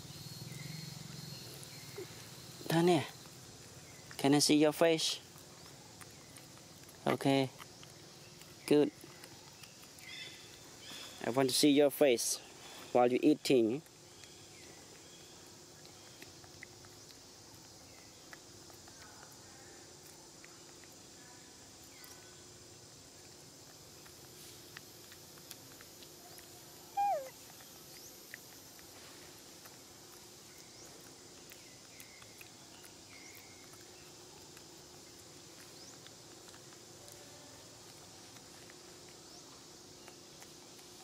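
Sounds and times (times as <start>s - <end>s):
monkey handling food rustling: 23.3s - 41.0s
monkey call gliding downward: 26.9s - 27.4s.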